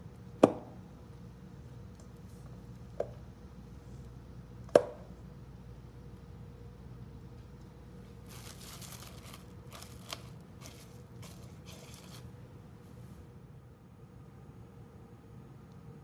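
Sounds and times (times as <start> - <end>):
plastic cling wrap crinkling: 8.2 - 12.3.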